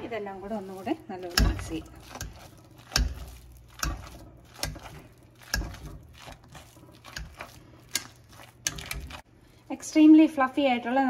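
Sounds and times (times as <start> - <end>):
potato masher thumping in pot: 1.2 - 6.2.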